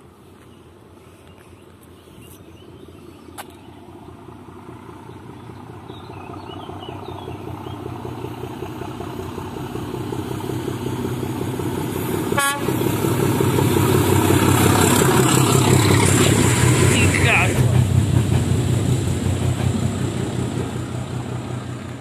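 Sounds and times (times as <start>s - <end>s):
diesel locomotive engine rumble: 0.0s - 22.0s
train horn toot: 12.3s - 12.8s.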